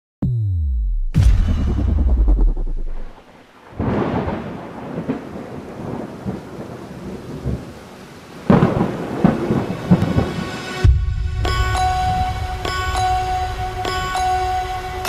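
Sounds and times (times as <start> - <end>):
thunder-like rumbling: 1.2 - 7.8, 8.4 - 11.5
rain-like hiss: 3.3 - 14.5.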